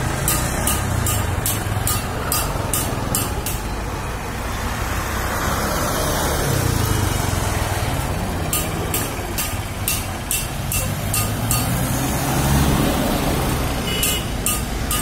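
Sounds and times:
traffic engines: 0.0 - 15.0
vehicle passing close: 0.0 - 15.0.

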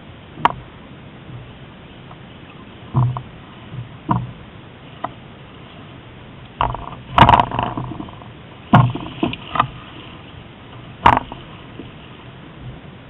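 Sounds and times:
rush of wind and water: 0.0 - 13.0
knocks against the hull: 2.9 - 4.4, 6.6 - 9.8, 11.0 - 12.0.

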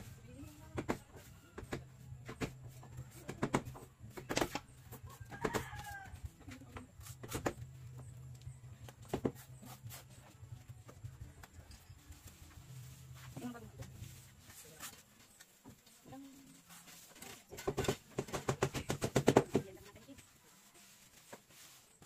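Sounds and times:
hand tools knocking and scraping: 16.8 - 20.2.

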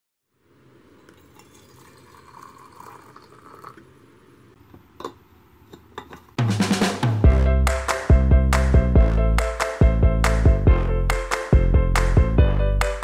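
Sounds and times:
water trickling into a jar: 1.0 - 4.0
music with a beat: 6.4 - 13.0.

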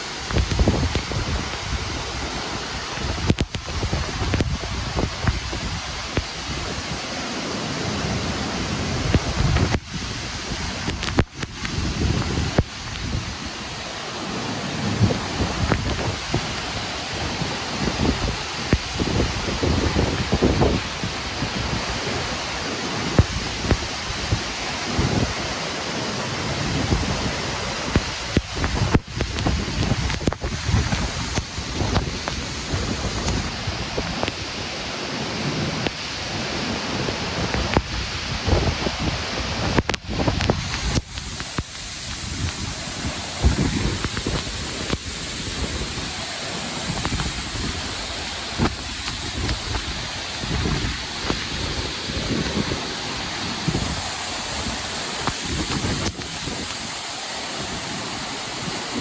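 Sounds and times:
wind buffeting microphone: 0.0 - 25.6, 26.2 - 59.0
waterfall roaring: 0.0 - 59.0.

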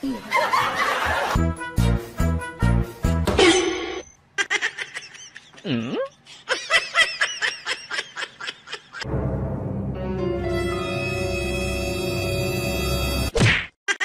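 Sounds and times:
person laughing: 4.4 - 9.1
background music with low drone: 9.1 - 13.3.

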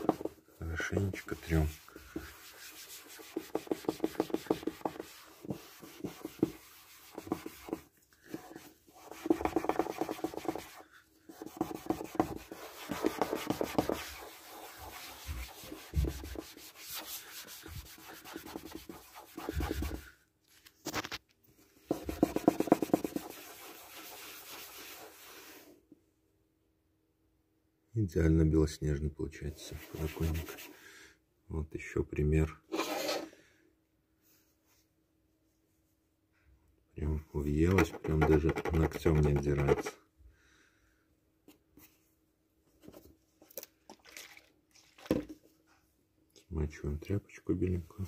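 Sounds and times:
cloth scrubbing plastic windowsill: 1.1 - 7.8, 8.5 - 20.0.

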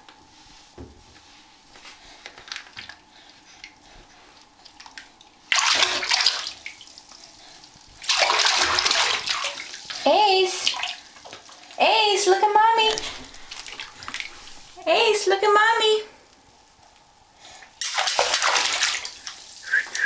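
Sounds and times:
baby splashing bath water: 2.0 - 15.2, 17.6 - 20.0.

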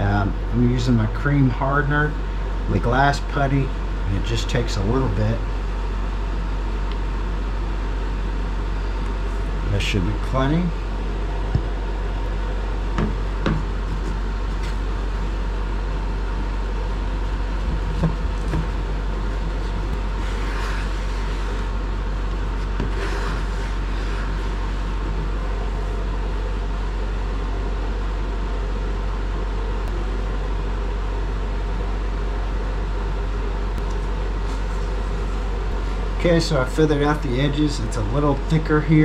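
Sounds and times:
electric fan droning: 0.0 - 39.0
putty spreader scraping: 17.7 - 21.8, 22.5 - 24.9.

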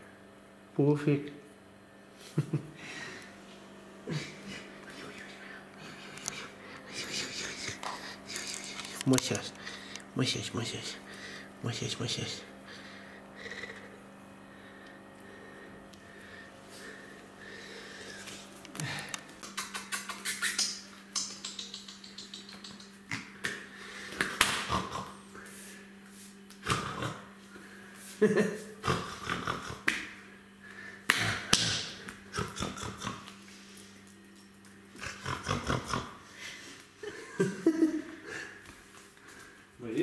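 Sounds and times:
faint steady hum: 0.0 - 40.0
dog claws clicking on tiles: 19.4 - 23.3.

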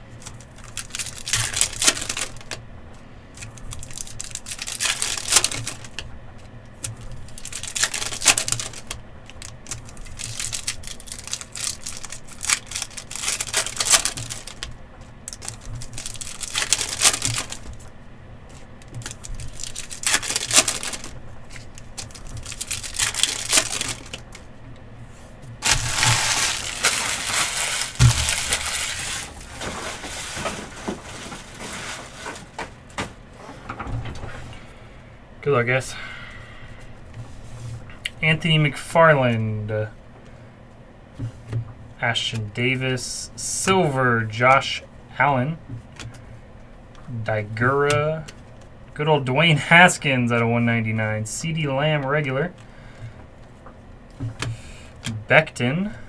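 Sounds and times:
cards rustling: 0.2 - 2.6, 3.4 - 6.1, 6.8 - 17.9, 18.5 - 24.5, 25.1 - 32.8
foil wrappers tearing: 0.2 - 2.6, 3.4 - 6.0, 6.8 - 17.8, 18.9 - 24.4, 25.6 - 32.6.

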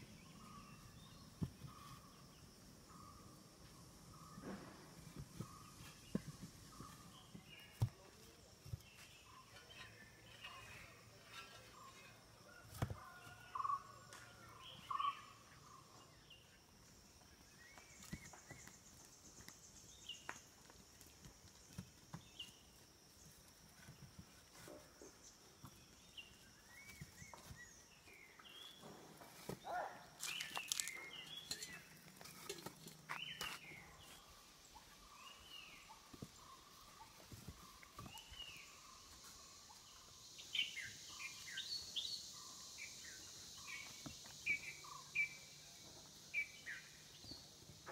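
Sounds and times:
bird chirps: 13.1 - 16.6, 24.6 - 32.5, 33.1 - 47.9.

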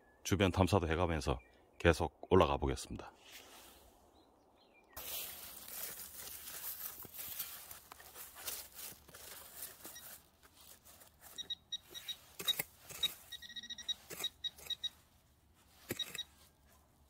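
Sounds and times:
hand pick digging dry soil: 5.0 - 16.7
metal detector beeps: 9.8 - 10.3, 11.2 - 15.0, 15.8 - 16.4.

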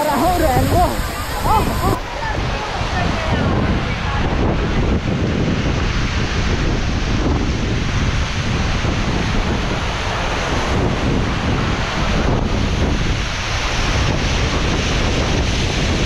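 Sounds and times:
waterfall rushing: 0.0 - 16.0
wind buffeting microphone: 0.0 - 16.0.

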